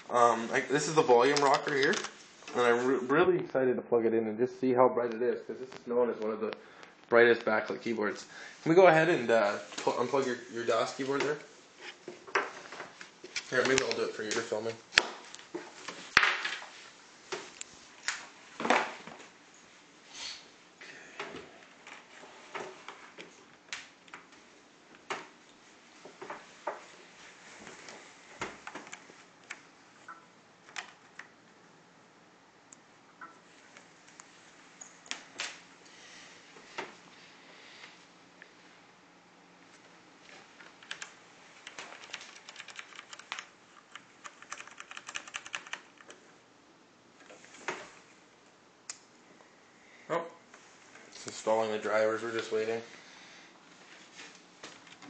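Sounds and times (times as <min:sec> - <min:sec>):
keyboard clicks and knocks: 0:40.6 - 0:46.2.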